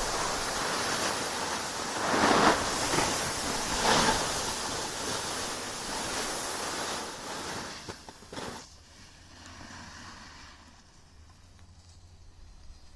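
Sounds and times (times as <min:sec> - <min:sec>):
wind on microphone: 0:00.0 - 0:07.2
hiss of gliding over snow: 0:00.0 - 0:12.9.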